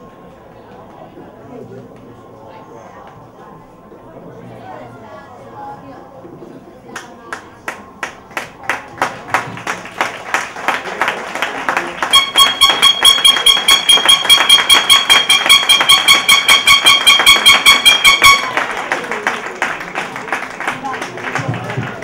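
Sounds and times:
spectators clapping in rhythm: 6.9 - 22.0
horn blaring short blasts: 12.1 - 18.7.

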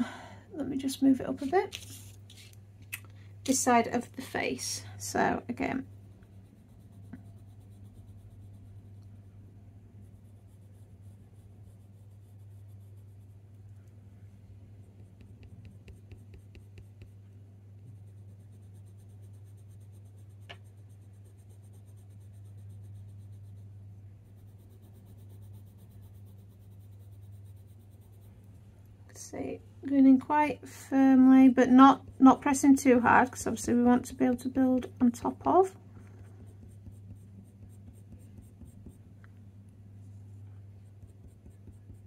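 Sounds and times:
steady low hum: 0.0 - 42.0
pencil scratching on paper: 5.6 - 9.0, 9.9 - 13.6, 14.8 - 17.2, 17.8 - 28.5, 31.5 - 39.1, 40.0 - 42.0.

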